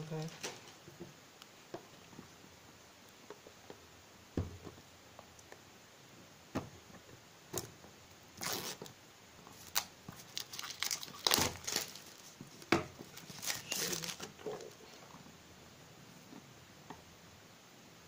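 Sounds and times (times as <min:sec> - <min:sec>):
plastic wrap crackling and rustling: 0:00.0 - 0:00.9, 0:08.4 - 0:15.1.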